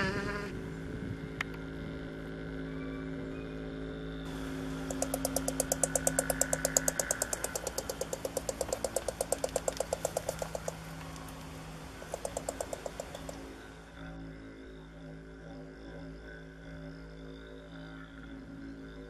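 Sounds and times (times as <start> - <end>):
porcupine teeth chattering: 4.3 - 13.7.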